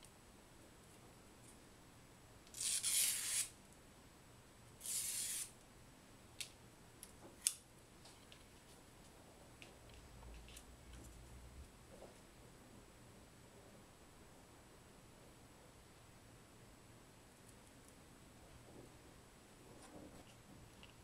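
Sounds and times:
paper scraping along scissor blade: 0:02.6 - 0:03.5, 0:04.8 - 0:05.5.

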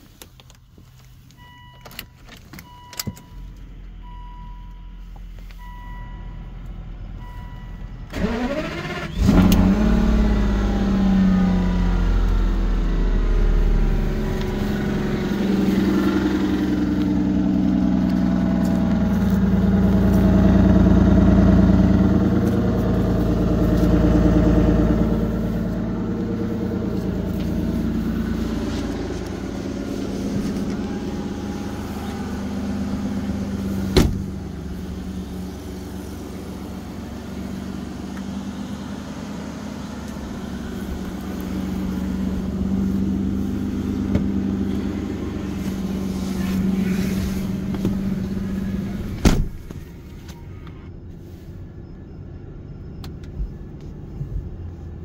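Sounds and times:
car engine revving and idling: 0:02.6 - 0:55.0.

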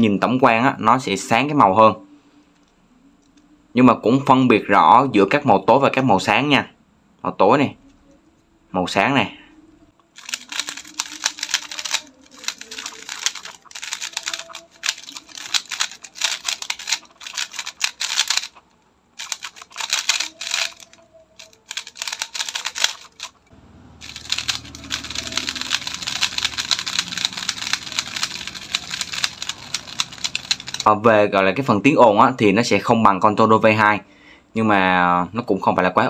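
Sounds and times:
puzzle cube clicking and clacking: 0:10.0 - 0:30.9.

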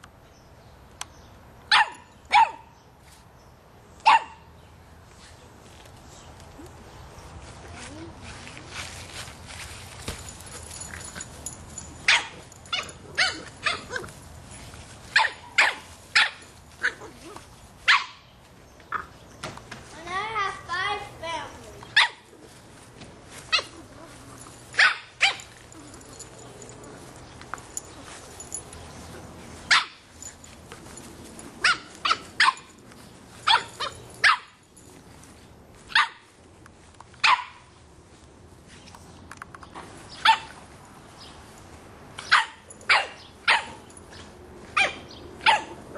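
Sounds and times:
puppy barking: 0:01.7 - 0:02.7, 0:04.0 - 0:04.4, 0:12.0 - 0:14.1, 0:15.2 - 0:18.2, 0:22.0 - 0:22.3, 0:24.8 - 0:25.5, 0:29.7 - 0:30.0, 0:31.6 - 0:32.7, 0:33.5 - 0:34.6, 0:35.9 - 0:36.3, 0:37.2 - 0:37.6, 0:40.2 - 0:40.5, 0:42.2 - 0:43.8, 0:44.8 - 0:45.8.

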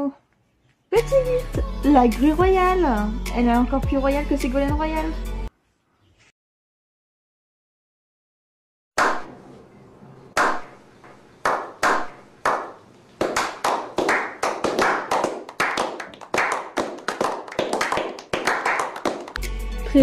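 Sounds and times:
men clapping: 0:11.4 - 0:19.5.

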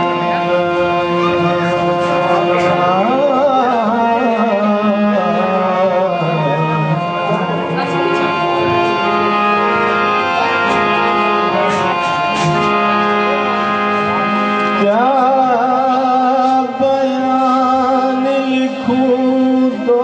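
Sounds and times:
man singing: 0:00.0 - 0:08.4, 0:14.7 - 0:20.0
harmonium melody: 0:00.0 - 0:20.0.

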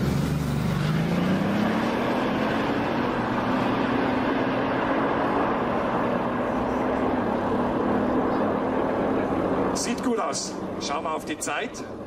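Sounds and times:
cars accelerating hard: 0:00.0 - 0:12.0.

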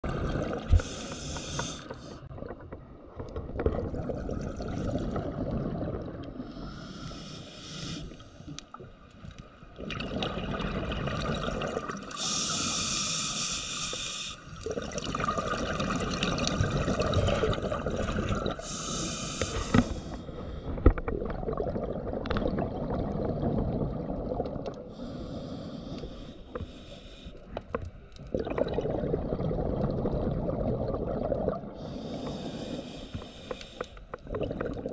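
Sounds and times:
gurgling exhaust bubbles underwater: 0:00.0 - 0:02.6, 0:03.4 - 0:06.6, 0:09.7 - 0:12.4, 0:14.6 - 0:20.0, 0:20.7 - 0:25.2, 0:28.2 - 0:32.9, 0:34.1 - 0:34.9
hiss of breathing gas: 0:00.7 - 0:02.2, 0:06.5 - 0:08.5, 0:12.1 - 0:14.5, 0:18.6 - 0:20.7, 0:31.8 - 0:34.0.

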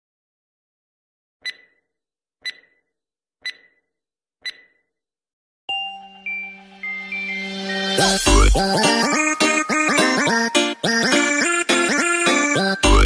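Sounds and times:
short electronic beeps: 0:01.4 - 0:01.8, 0:02.4 - 0:02.8, 0:03.4 - 0:03.8, 0:04.5 - 0:04.8, 0:05.7 - 0:08.5
intro music chord: 0:05.7 - 0:08.6.

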